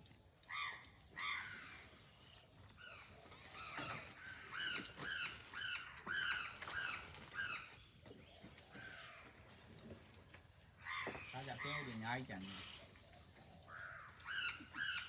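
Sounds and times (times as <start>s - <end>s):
crows cawing: 0.5s - 1.9s, 8.7s - 9.6s, 10.8s - 12.8s, 13.7s - 15.0s.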